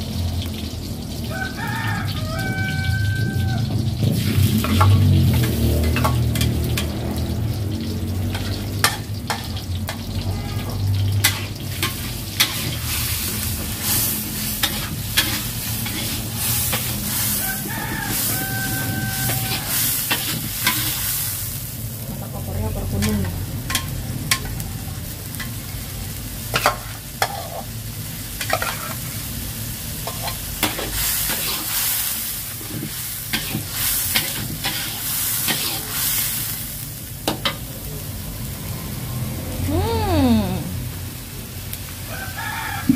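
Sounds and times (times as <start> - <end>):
mixture sizzling: 3.5 - 37.0
metal spatula scraping a wok: 8.3 - 10.0, 10.6 - 21.5, 26.5 - 27.8, 28.4 - 29.2, 30.0 - 36.4.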